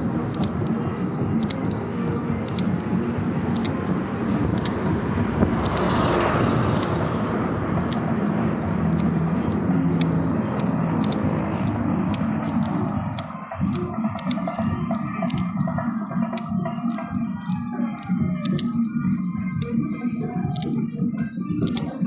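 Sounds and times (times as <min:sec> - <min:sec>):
vehicle engine running: 0:00.0 - 0:22.0
light clicks: 0:00.3 - 0:07.2
passing vehicle hiss: 0:04.0 - 0:13.1.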